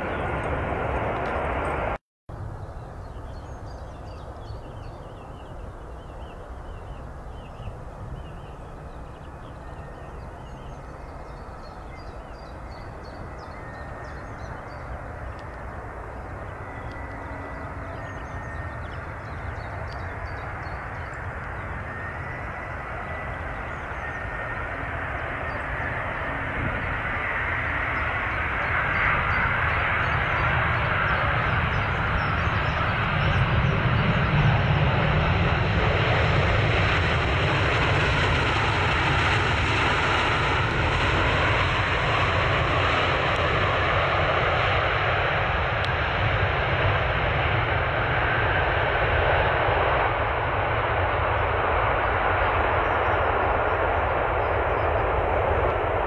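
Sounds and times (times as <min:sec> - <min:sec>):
jet airliner engine noise: 0:00.0 - 0:56.0
small birds chirping: 0:02.6 - 0:34.6.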